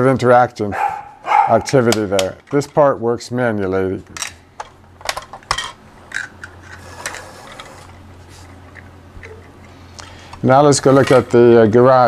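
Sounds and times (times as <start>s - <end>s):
plastic toy clicking and knocking: 4.2s - 7.2s.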